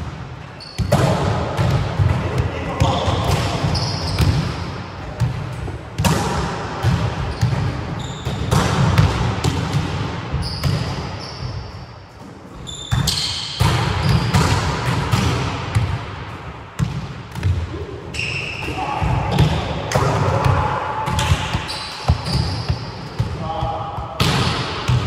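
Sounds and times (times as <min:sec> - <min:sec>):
shoes squeaking on floor: 0:00.6 - 0:01.0, 0:03.7 - 0:04.3, 0:07.3 - 0:08.4, 0:10.4 - 0:11.8, 0:12.6 - 0:13.4, 0:18.2 - 0:18.7, 0:21.6 - 0:23.1
volleyball smacks and bounces: 0:12.9 - 0:16.0.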